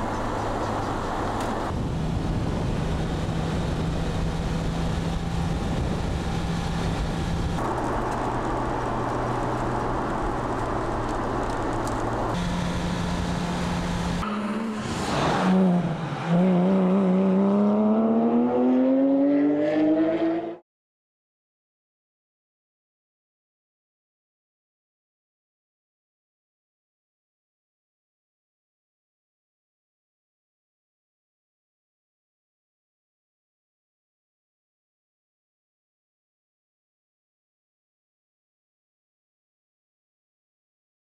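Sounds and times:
sports car engine revving: 12.3s - 20.6s.

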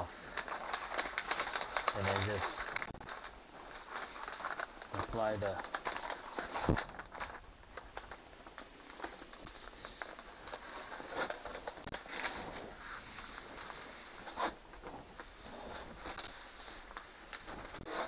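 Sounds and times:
wallpaper rustling and crinkling: 0.0s - 18.0s
paper backing peeled off: 0.3s - 7.4s.

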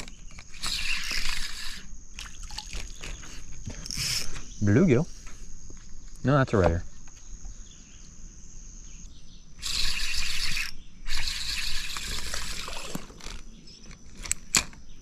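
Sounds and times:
fishing reel cranking: 0.0s - 1.9s, 3.8s - 4.3s, 9.6s - 13.4s.

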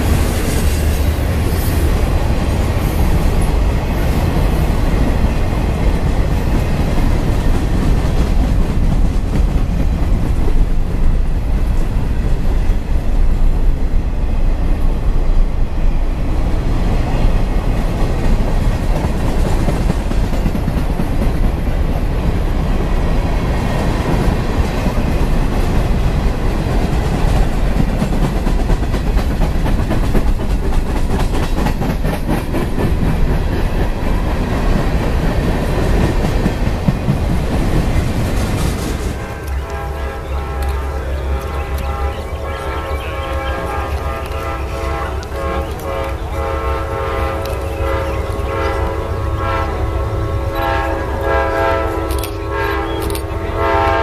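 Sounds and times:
train cars rumbling past: 0.0s - 54.0s
wheels clacking over rails: 17.5s - 39.9s.

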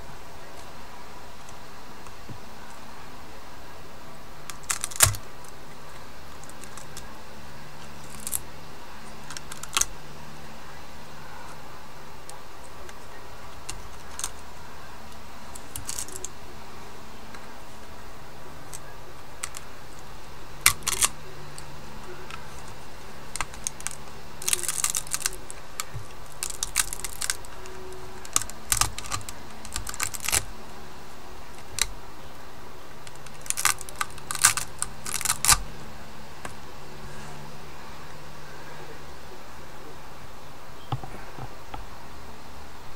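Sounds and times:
steady low hum: 0.0s - 42.9s
plastic snapping and cracking: 4.4s - 7.1s, 7.8s - 8.5s, 9.1s - 10.0s, 13.6s - 14.5s, 15.1s - 16.4s, 18.6s - 30.6s, 31.6s - 32.0s, 33.0s - 35.6s.

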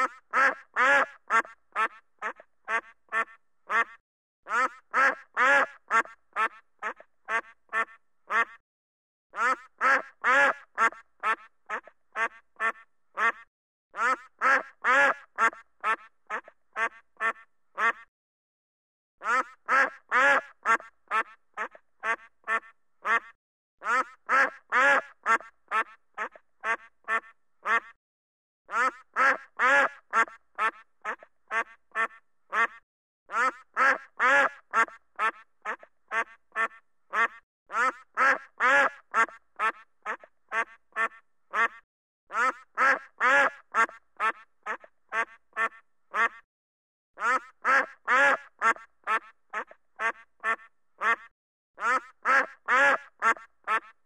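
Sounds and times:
duck quacking: 0.0s - 8.6s, 9.4s - 18.1s, 19.2s - 28.0s, 28.7s - 46.4s, 47.2s - 54.0s.

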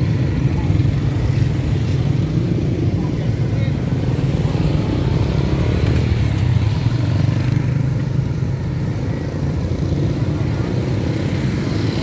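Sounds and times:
motorcycle engines in traffic: 0.0s - 12.0s.

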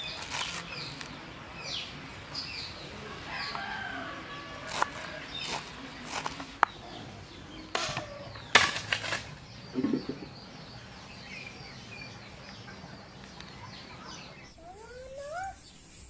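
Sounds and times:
faint bird chirps: 9.4s - 16.0s.

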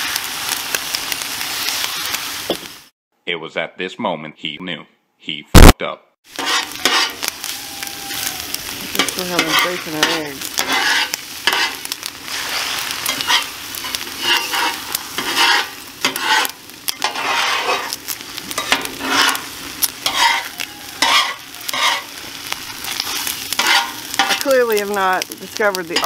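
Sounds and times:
eggs and bacon sizzling: 0.0s - 2.9s, 5.6s - 26.0s
metal spatula scraping griddle: 6.3s - 7.3s, 8.9s - 24.6s.

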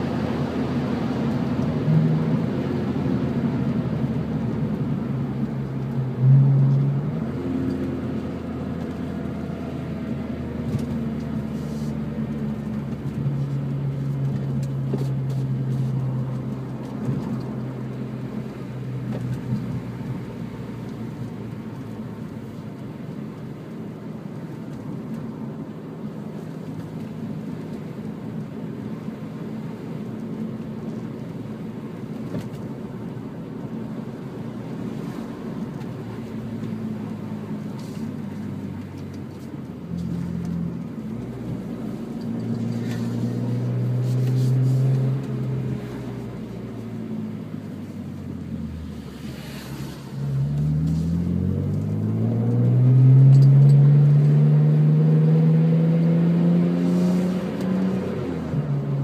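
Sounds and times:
car engine at low revs: 0.0s - 59.0s
tyre and road noise: 0.0s - 59.0s.

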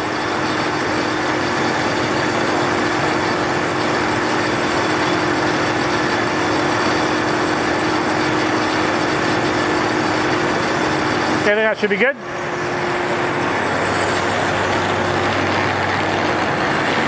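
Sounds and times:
pump circulating water: 0.0s - 17.0s
steady pump hum: 0.0s - 17.0s.

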